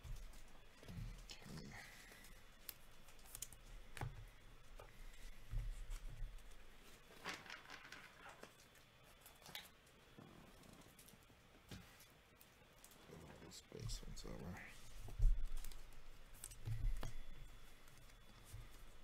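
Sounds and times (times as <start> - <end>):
soft rustles: 10.2 - 19.0.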